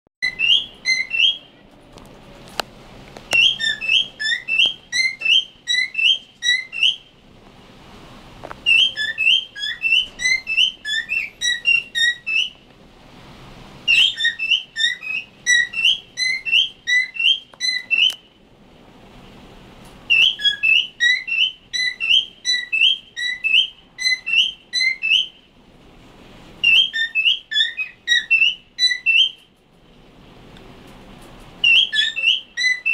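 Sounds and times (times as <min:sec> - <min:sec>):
cockatiel chirping: 0:00.2 - 0:01.5, 0:03.3 - 0:07.1, 0:08.6 - 0:12.6, 0:13.9 - 0:18.2, 0:20.1 - 0:25.4, 0:26.6 - 0:29.5, 0:31.6 - 0:32.9.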